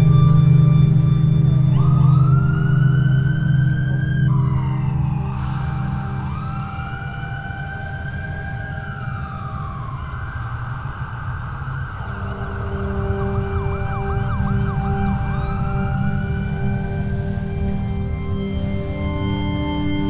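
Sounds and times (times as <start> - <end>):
emergency vehicle siren: 0.0 - 20.0
steady low drone: 0.0 - 20.0.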